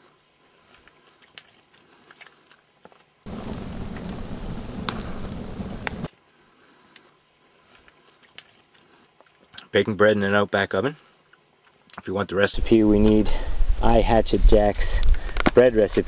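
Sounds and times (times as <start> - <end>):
faint crackles and ticks: 0.0 - 13.2, 14.3 - 16.0
wood fire rushing and crackling: 3.1 - 9.4, 12.6 - 16.0.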